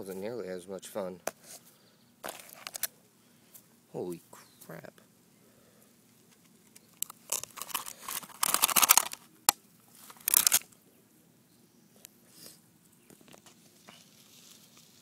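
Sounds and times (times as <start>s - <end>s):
aluminium can crackling: 6.7s - 9.2s, 10.1s - 10.6s.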